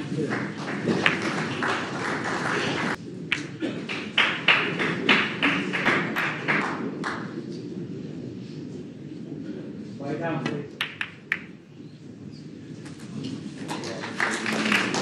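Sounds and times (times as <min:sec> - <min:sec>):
audience applauding: 0:00.0 - 0:07.4, 0:12.8 - 0:15.0.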